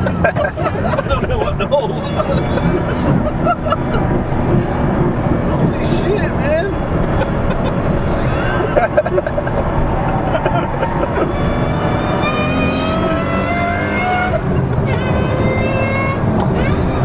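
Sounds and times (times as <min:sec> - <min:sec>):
rising engine whine: 0:00.0 - 0:17.0
road rumble: 0:00.0 - 0:17.0
vehicle engine accelerating: 0:00.0 - 0:17.0.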